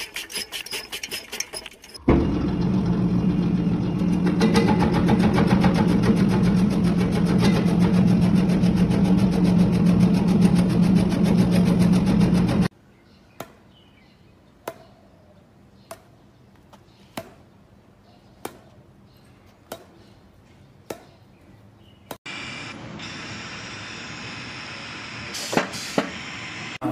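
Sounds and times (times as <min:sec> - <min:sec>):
meat slicer motor hum: 0:02.1 - 0:12.6.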